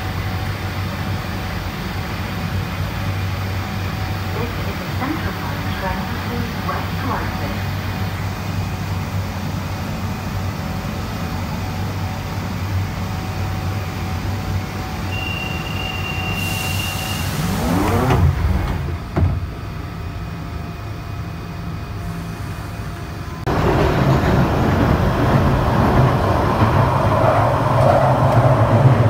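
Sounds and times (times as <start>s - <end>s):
train humming: 0.0s - 29.0s
train pulling away: 0.0s - 29.0s
high door warning tone: 15.1s - 18.4s
train doors sliding shut: 15.1s - 19.8s.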